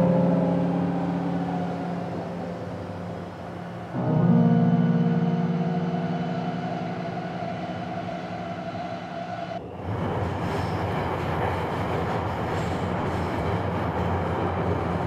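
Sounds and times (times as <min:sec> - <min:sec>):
held music chord: 0:00.0 - 0:09.6
subway train rumbling: 0:00.0 - 0:15.0.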